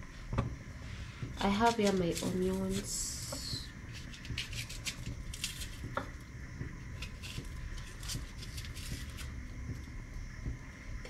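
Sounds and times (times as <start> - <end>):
knife scraping onion skin: 1.4 - 6.2, 6.9 - 9.4.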